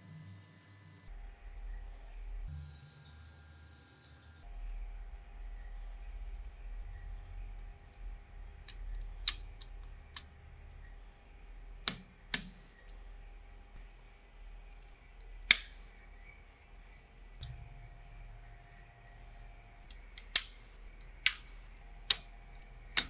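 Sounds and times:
plastic pieces clicking together: 8.6 - 10.8.

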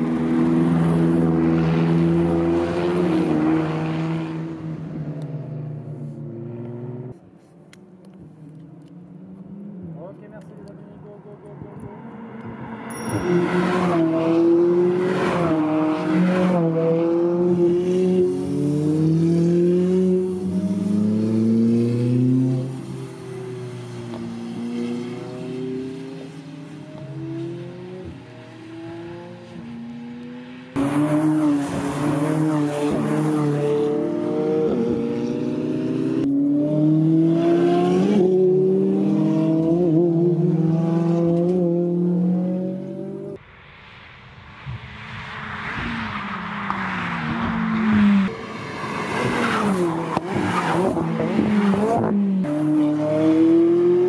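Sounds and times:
sports car engine accelerating: 8.0 - 43.4, 46.6 - 54.0.

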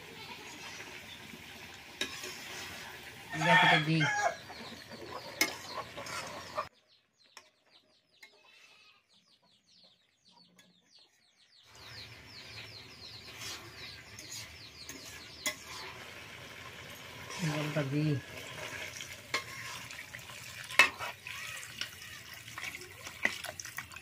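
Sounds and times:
curry sizzling in a pan: 0.0 - 6.7, 11.7 - 24.0
chicks cheeping: 4.2 - 15.9.

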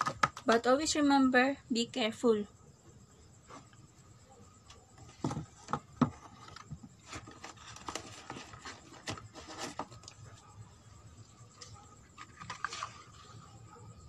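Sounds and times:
cardboard rubbing and scraping: 5.1 - 10.1.

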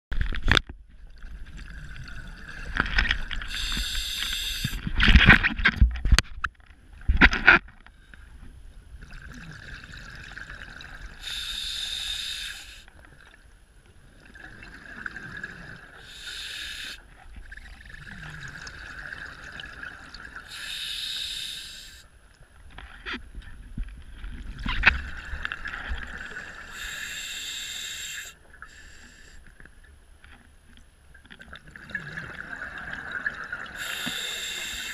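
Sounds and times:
diver breathing through regulator: 3.4 - 4.9, 11.2 - 12.9, 16.0 - 17.0, 20.5 - 22.1, 26.1 - 29.5, 33.8 - 34.9.

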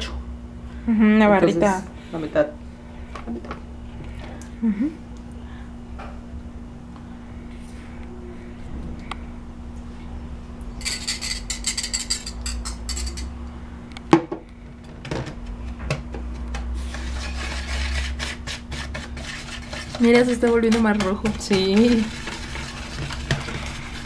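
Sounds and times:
kitchenware clinking and tapping: 10.8 - 13.3
whisk beating batter in bowl: 16.8 - 24.0.

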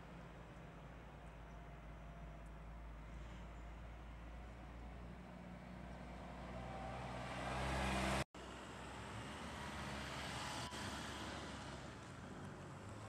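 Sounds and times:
outdoor background noise: 0.0 - 13.0
motor vehicle driving by: 5.0 - 13.0.

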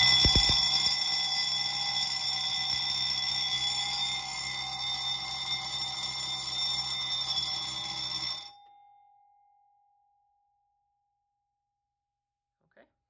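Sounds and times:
fire alarm bell ringing: 0.0 - 9.2.

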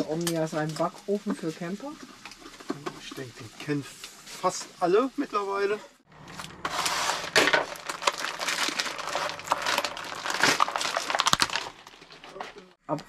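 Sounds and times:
plastic bag crinkling: 6.2 - 12.8
scissors cutting plastic bag: 7.4 - 12.6.

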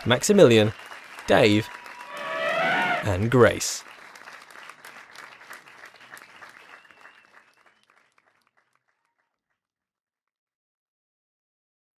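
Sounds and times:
hands clapping: 0.0 - 2.3, 3.1 - 9.3.

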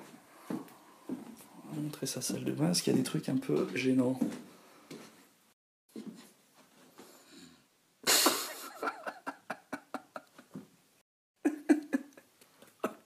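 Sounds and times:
person laughing: 8.1 - 10.6, 11.4 - 13.0.

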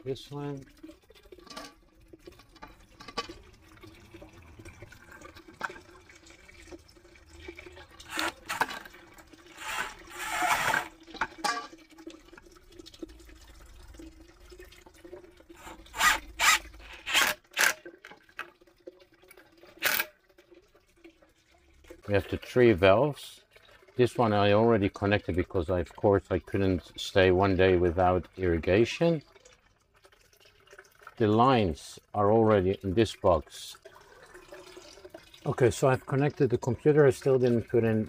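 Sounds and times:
cordless drill driving screws: 15.6 - 17.8.

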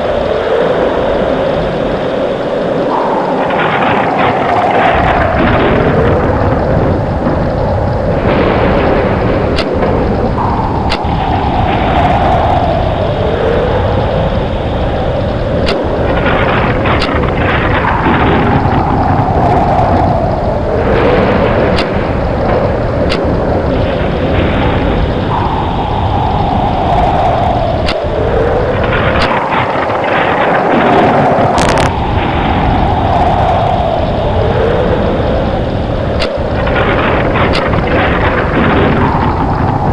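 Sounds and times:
howling tornado wind: 0.0 - 39.9
faint clicks: 2.9 - 39.9.

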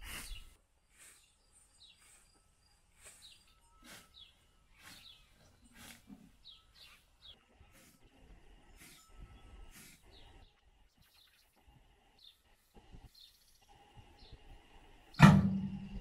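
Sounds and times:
scythe swishing through grass: 0.0 - 1.2, 2.0 - 6.1, 9.7 - 10.0
small birds chirping: 0.0 - 15.2.

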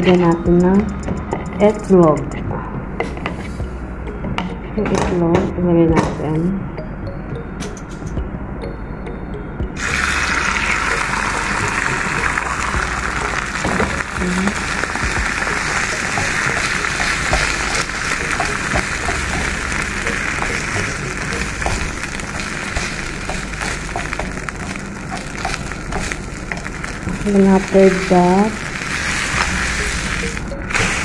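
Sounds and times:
eggs sizzling in hot oil: 9.8 - 31.0.

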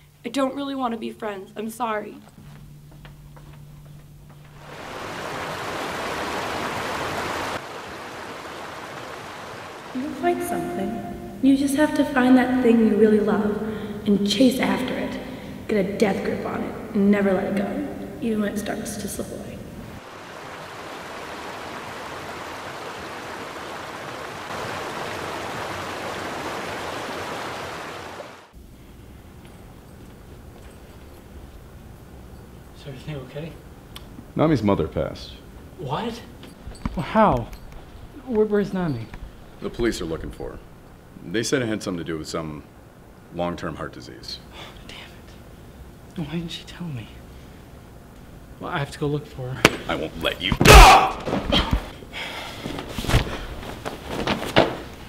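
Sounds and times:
flowing water rushing: 4.6 - 10.9, 20.0 - 28.5.

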